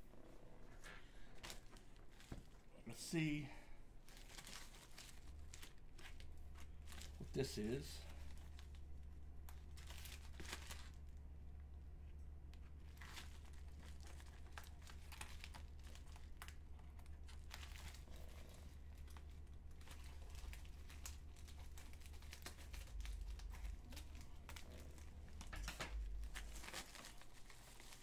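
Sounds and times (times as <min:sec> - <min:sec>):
plastic mailer crinkling: 0:04.1 - 0:11.2, 0:12.8 - 0:28.0.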